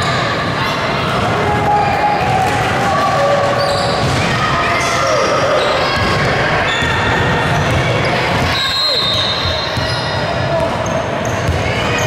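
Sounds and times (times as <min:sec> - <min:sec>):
sneaker squeaks: 0:03.5 - 0:04.3, 0:05.2 - 0:12.0
basketball bouncing on court: 0:06.8 - 0:11.9.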